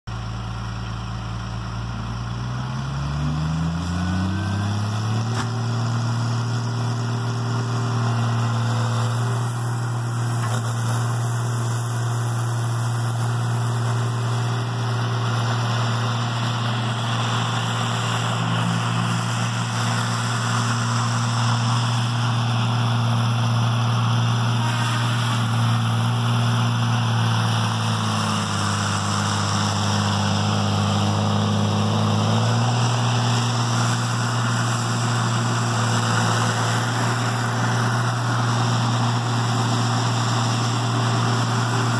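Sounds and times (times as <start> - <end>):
diesel engine revving: 0.1 - 41.9.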